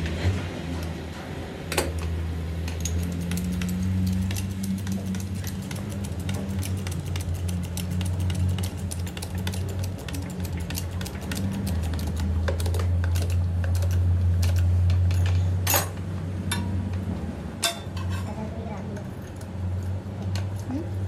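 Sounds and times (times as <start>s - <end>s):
steady low hum: 0.0s - 21.0s
metallic clicking and clinking: 1.7s - 16.7s.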